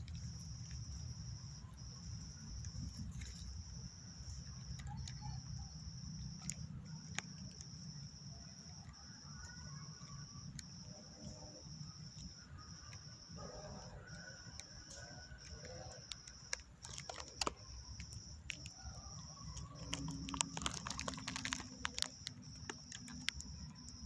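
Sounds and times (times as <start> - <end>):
cricket trilling: 0.0 - 24.0
sharp clicks: 13.7 - 24.0.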